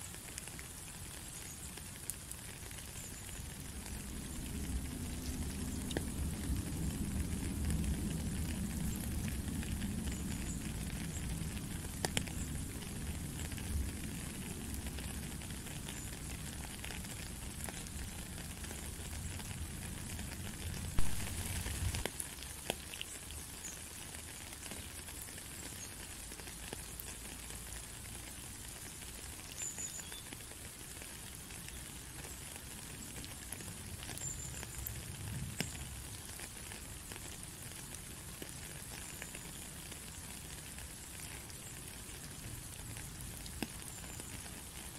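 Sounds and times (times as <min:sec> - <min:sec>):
rain drop ticks: 0:00.0 - 0:44.9
steady rain hissing: 0:00.0 - 0:44.9.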